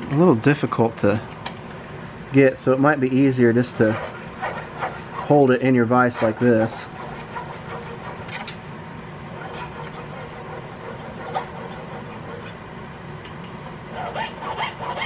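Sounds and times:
file rasping on metal: 3.8s - 8.6s, 9.3s - 12.6s, 13.9s - 15.0s.

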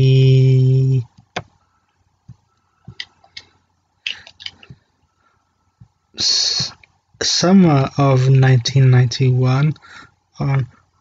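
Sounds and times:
person speaking: 6.2s - 9.8s.

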